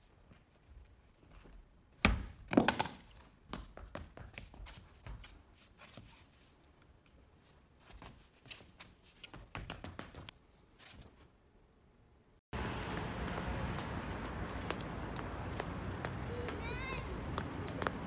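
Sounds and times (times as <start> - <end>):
footsteps: 12.6 - 18.0.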